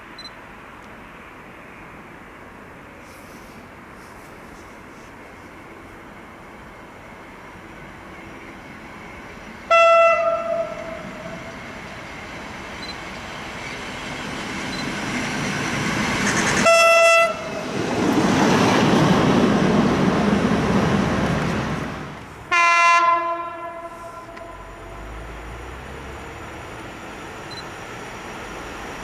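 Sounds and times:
rail vehicle passing on rails: 0.0s - 29.0s
low-pitched locomotive horn blast: 9.7s - 11.6s, 16.6s - 17.6s, 22.5s - 25.7s
short single-tone horn: 22.5s - 24.7s.

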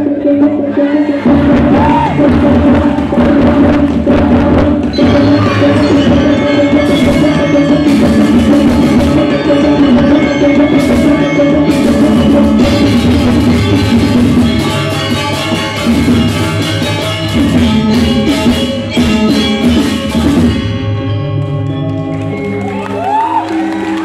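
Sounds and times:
drums: 0.0s - 24.0s
metallophones ringing: 4.9s - 22.9s.

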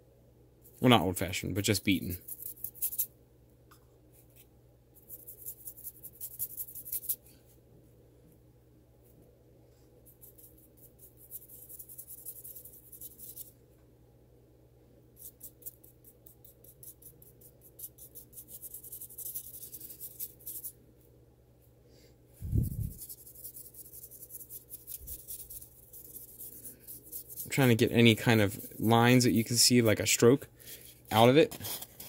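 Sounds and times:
brush scrubbing scratchy strokes: 16.6s - 20.7s, 22.4s - 29.7s.

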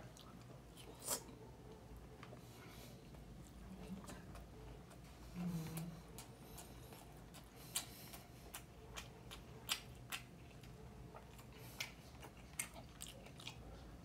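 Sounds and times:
person chewing food: 0.0s - 14.0s.

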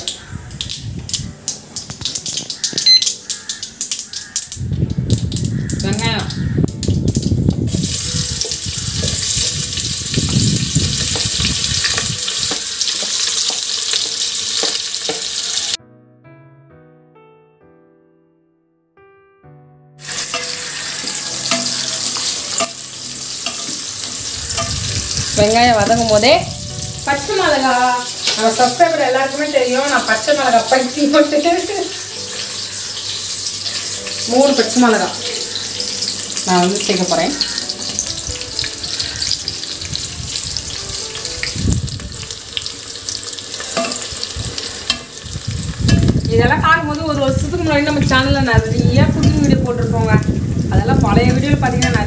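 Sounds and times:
onions sizzling in hot oil: 0.0s - 15.8s, 20.0s - 52.0s
soft background music: 0.0s - 52.0s.

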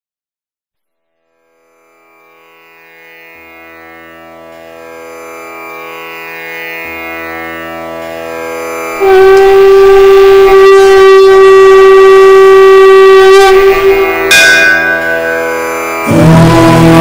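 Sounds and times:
plucked string drone music: 1.1s - 17.0s.

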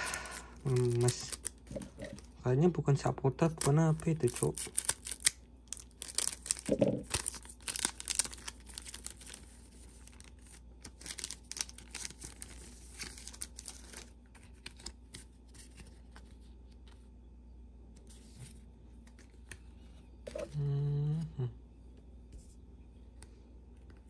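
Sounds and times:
foil wrappers tearing and crinkling: 0.0s - 2.2s, 3.5s - 15.8s.

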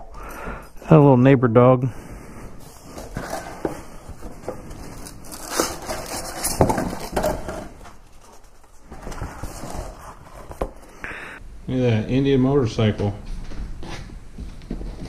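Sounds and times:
cardboard and styrofoam rustling: 2.6s - 10.9s.

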